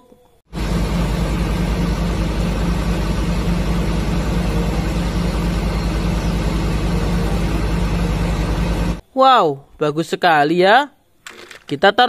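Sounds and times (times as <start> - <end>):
diesel engine running: 0.5 - 9.0.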